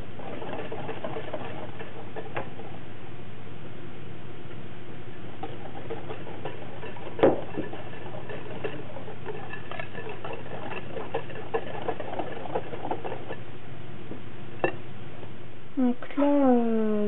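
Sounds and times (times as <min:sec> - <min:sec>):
knock on glass bowl: 0:07.2 - 0:07.6.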